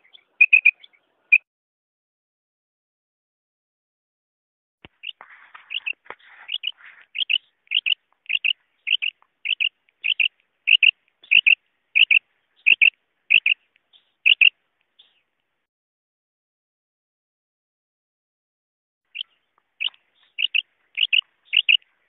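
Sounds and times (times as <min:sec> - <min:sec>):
quail calling: 0:00.0 - 0:01.4, 0:04.9 - 0:15.2, 0:19.1 - 0:22.0.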